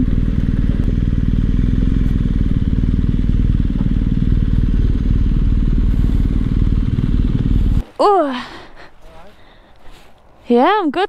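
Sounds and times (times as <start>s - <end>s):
motorcycle engine at low revs: 0.0s - 8.0s.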